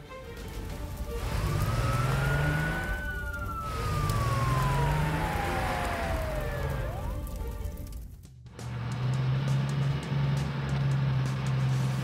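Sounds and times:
low rumble: 0.2 - 12.0
cartoon fire engine siren: 1.1 - 7.9.

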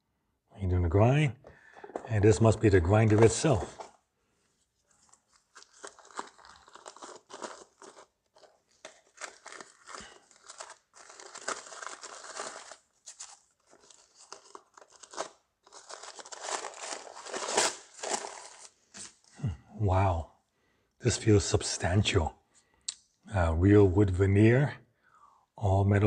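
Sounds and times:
tissue paper crinkling: 2.4 - 3.9, 4.6 - 19.3.

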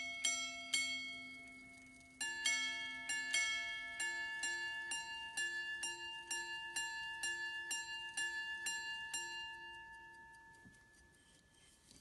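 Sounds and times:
pocket watch striking gongs: 2.2 - 10.8.

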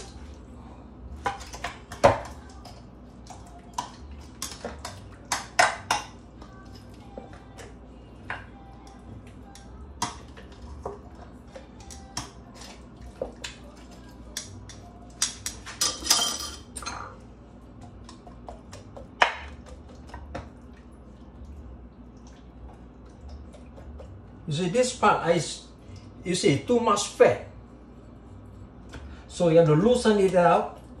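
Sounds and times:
utensil clinking on glass dish: 14.6 - 17.2.

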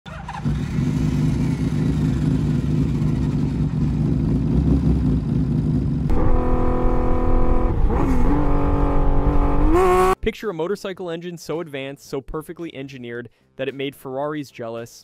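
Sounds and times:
motorcycle engine cruising: 0.1 - 10.2
motorcycle engine rumbling: 0.1 - 10.2.

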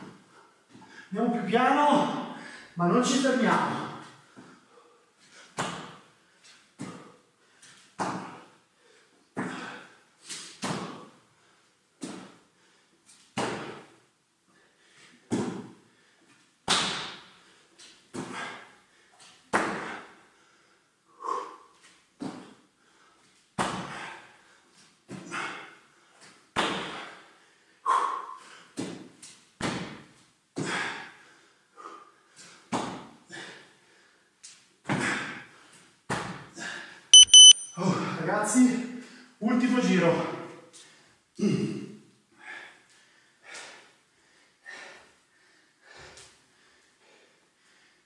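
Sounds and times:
man breathing hard: 2.3 - 2.8, 19.9 - 21.8, 26.8 - 28.8, 30.6 - 32.7, 42.3 - 48.0
bare feet thudding on rubber floor: 13.4 - 13.8, 15.3 - 15.7.

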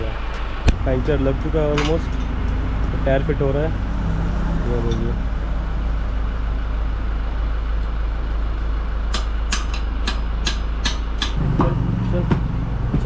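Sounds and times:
steady background hum: 0.0 - 13.0
sharp metal clicks: 9.1 - 11.4.

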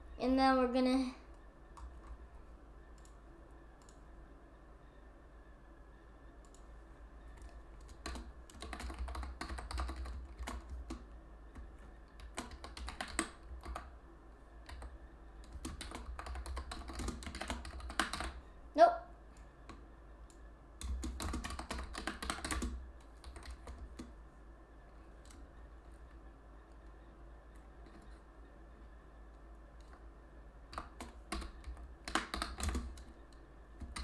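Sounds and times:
low steady hum: 0.0 - 34.0
typing on keyboard: 7.3 - 13.9, 14.6 - 18.4, 19.7 - 24.1, 30.7 - 34.0.

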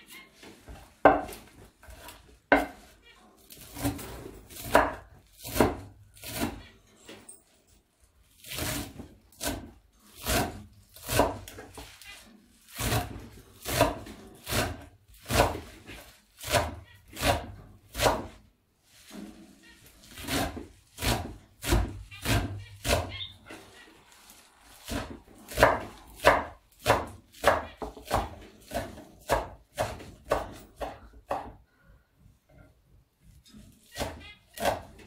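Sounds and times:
knife chopping on wooden board: 1.0 - 2.9, 3.6 - 6.6, 8.4 - 11.8, 12.8 - 18.4, 20.1 - 23.1, 24.8 - 31.6, 33.8 - 35.0.

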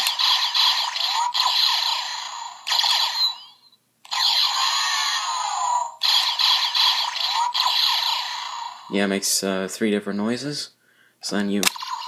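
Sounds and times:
toy blaster shooting sound effects: 0.0 - 8.9, 11.6 - 12.0.

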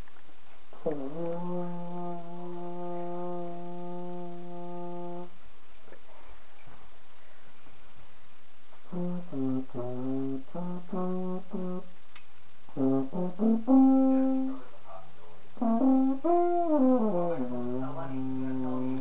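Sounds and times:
french horn playing: 0.7 - 5.4, 8.8 - 12.0, 12.7 - 19.0.

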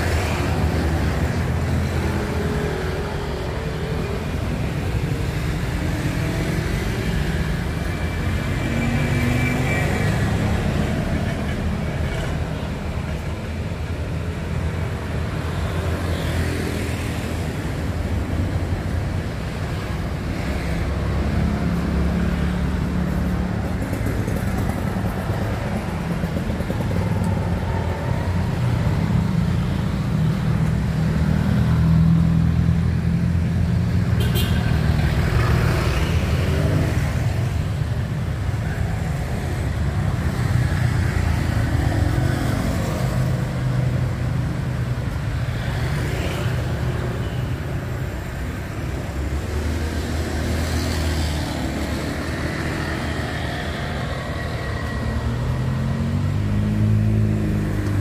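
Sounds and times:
motor vehicles engine hum: 0.0 - 58.0.

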